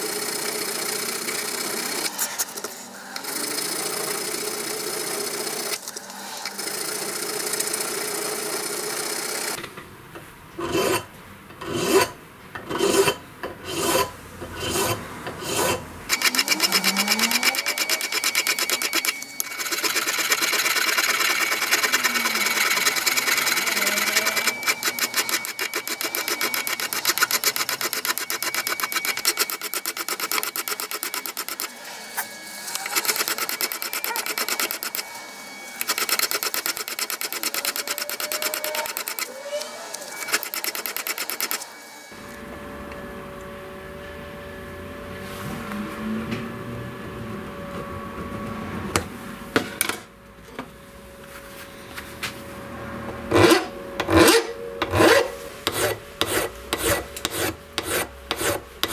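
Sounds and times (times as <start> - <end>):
file rasping on brass: 10.6 - 12.1, 12.7 - 17.8, 53.3 - 58.9.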